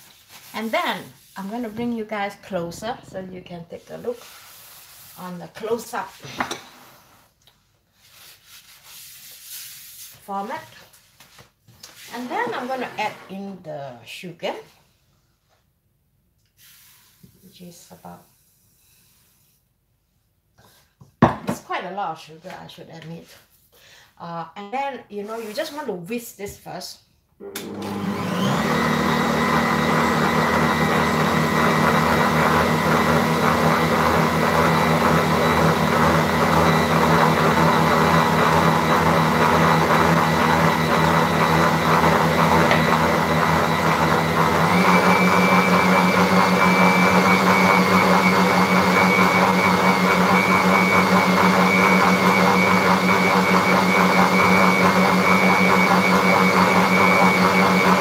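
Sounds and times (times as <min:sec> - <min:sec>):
stand mixer motor whine: 0:27.4 - 0:58.0.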